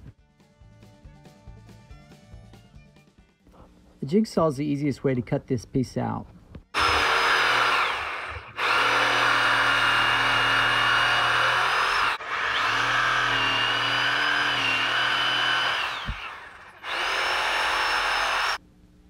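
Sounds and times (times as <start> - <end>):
electric jigsaw cutting wood: 6.8 - 18.6.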